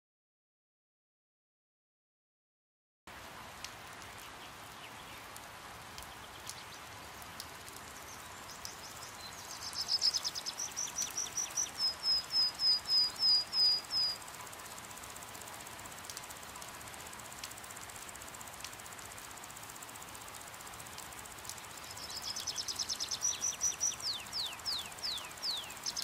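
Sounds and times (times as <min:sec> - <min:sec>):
steady hiss of rain: 0:03.1 - 0:26.0
bird trilling and chirping: 0:08.6 - 0:14.2, 0:21.8 - 0:26.0.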